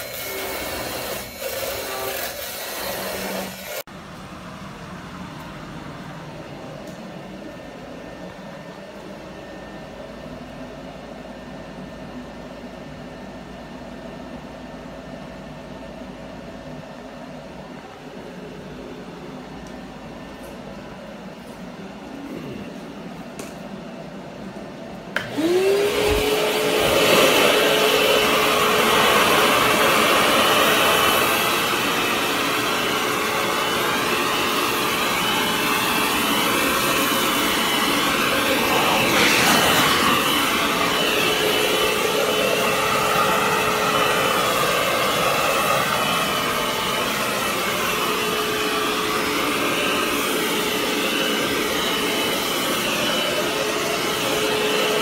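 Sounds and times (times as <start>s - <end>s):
shop vacuum motor whine: 0.0s - 23.6s, 24.9s - 55.0s
rush of air: 38.5s - 41.0s.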